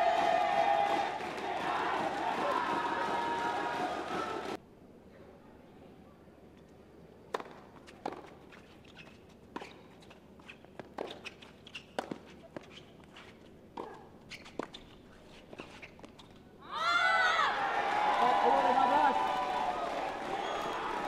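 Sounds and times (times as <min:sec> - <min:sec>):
crowd cheering: 0:00.0 - 0:04.6, 0:16.8 - 0:21.0
tennis ball bouncing: 0:12.0 - 0:12.7.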